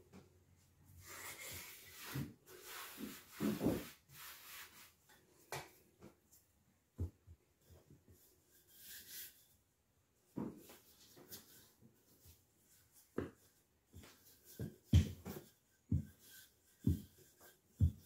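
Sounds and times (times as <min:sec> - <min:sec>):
hands rubbing flour on surface: 0:01.0 - 0:05.0, 0:08.2 - 0:09.5, 0:10.7 - 0:18.0.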